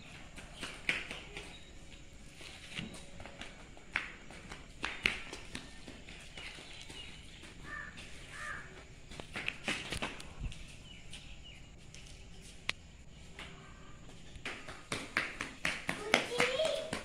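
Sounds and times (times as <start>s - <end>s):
footsteps on stone paving: 0.0s - 17.0s
bird calls: 5.7s - 8.9s.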